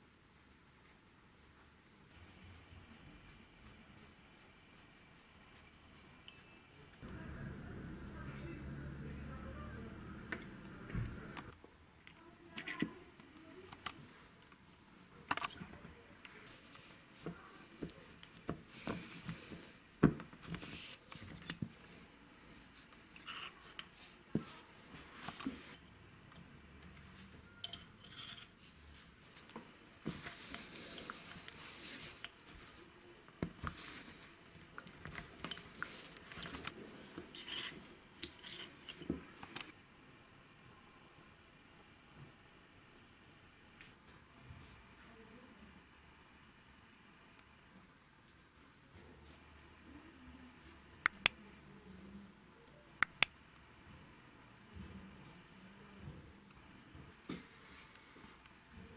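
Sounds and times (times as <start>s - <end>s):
metal clicks and scrapes of vise: 37.3s - 39.6s.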